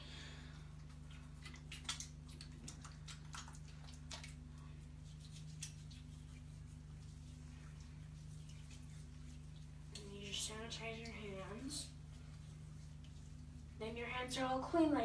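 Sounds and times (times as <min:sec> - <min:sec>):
steady low hum: 0:00.0 - 0:15.0
hands rubbing sanitizer gel: 0:04.3 - 0:13.8.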